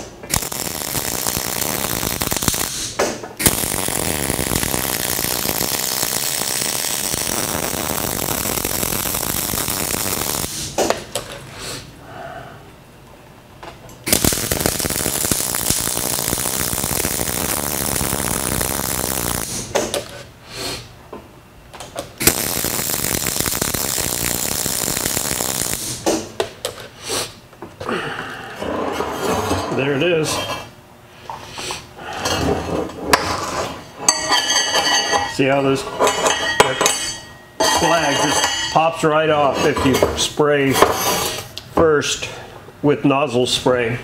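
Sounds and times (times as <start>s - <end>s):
welding arc crackling: 0.0s - 11.0s, 14.0s - 20.0s, 22.1s - 26.4s.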